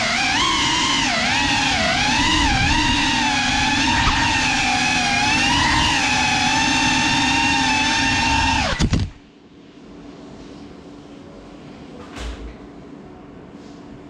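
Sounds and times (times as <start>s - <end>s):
drone motors whining: 0.0s - 9.2s.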